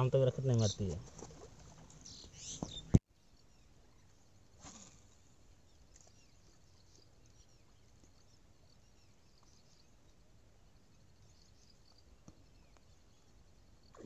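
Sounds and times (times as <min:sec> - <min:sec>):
faint bird chirps: 0:00.0 - 0:14.0.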